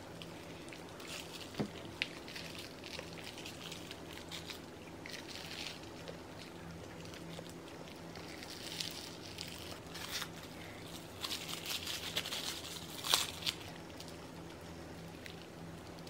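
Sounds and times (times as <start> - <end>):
plastic cling wrap crinkling: 0.1 - 16.0.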